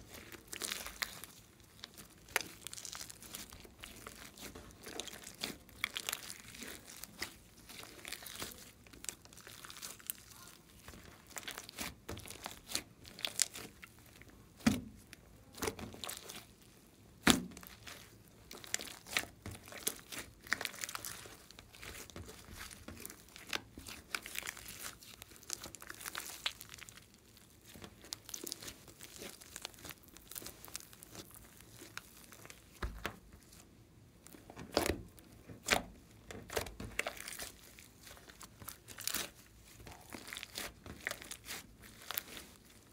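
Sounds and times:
slime crackling and clicking: 0:35.6 - 0:42.7.

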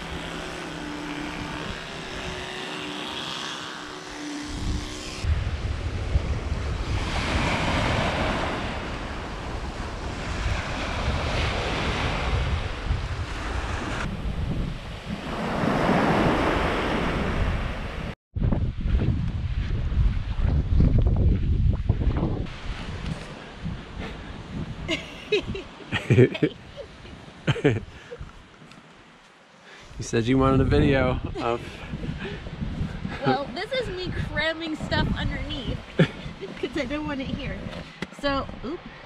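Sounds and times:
steady hum with held tones: 0:00.0 - 0:06.8
wind buffeting microphone: 0:04.1 - 0:28.5, 0:29.9 - 0:39.0
ocean surf washing onto beach: 0:05.3 - 0:14.2.

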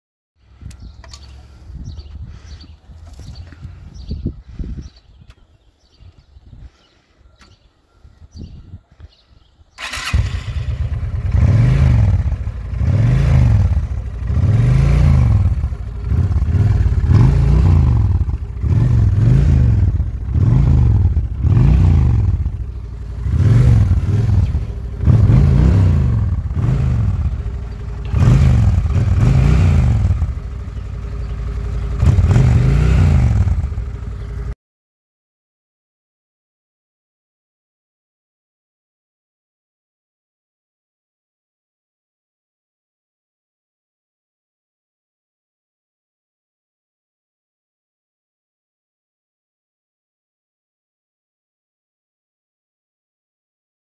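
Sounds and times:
motorcycle engine starting and revving: 0:00.6 - 0:04.6, 0:09.7 - 0:34.6.

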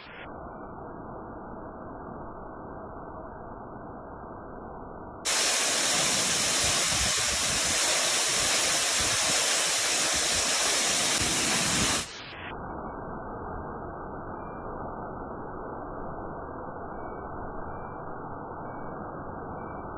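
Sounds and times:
waterfall rushing: 0:05.3 - 0:12.2
muffled rush of water: 0:05.3 - 0:14.7.

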